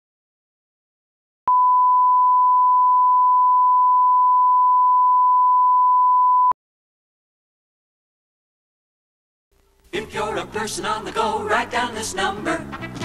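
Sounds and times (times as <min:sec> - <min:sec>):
steady pure test tone beep: 0:01.5 - 0:06.6.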